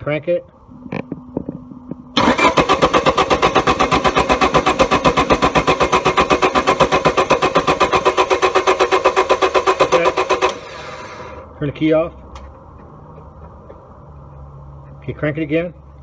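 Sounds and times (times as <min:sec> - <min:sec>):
starter motor cranking engine: 0:02.1 - 0:11.4.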